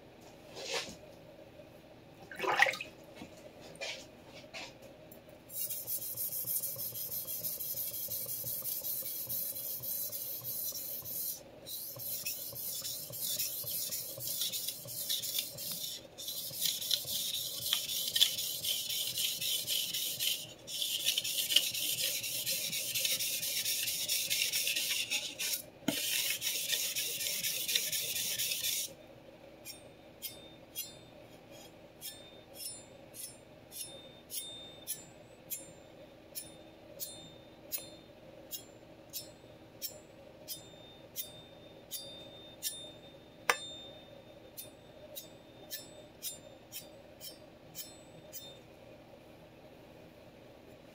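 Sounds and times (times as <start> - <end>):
knife rasping on whetstone: 5.5 - 28.9.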